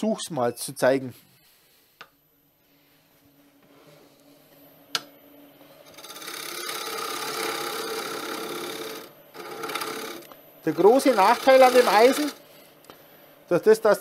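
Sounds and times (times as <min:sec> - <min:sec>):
wood lathe humming: 0:05.8 - 0:12.4
turning tool scraping wood: 0:05.9 - 0:12.4.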